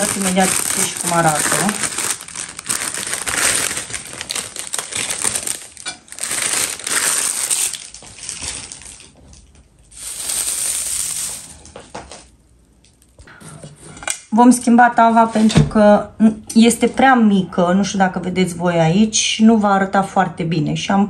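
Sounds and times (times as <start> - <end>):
dry grass rustling and crackling: 0.0 - 9.2, 9.9 - 11.7
plastic bag crinkling: 0.0 - 12.4.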